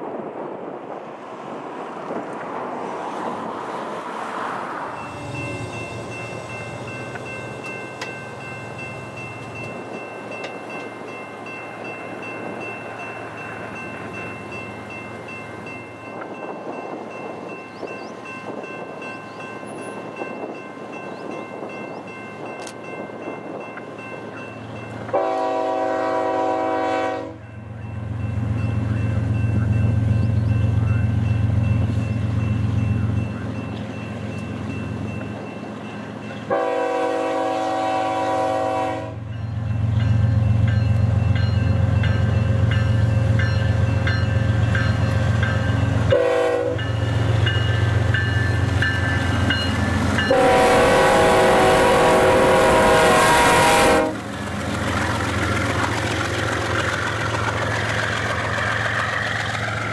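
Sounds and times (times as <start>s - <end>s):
freight train rumbling: 0.0s - 59.9s
train air horn blast: 25.1s - 27.4s, 36.5s - 39.3s, 46.1s - 46.9s, 50.3s - 54.2s.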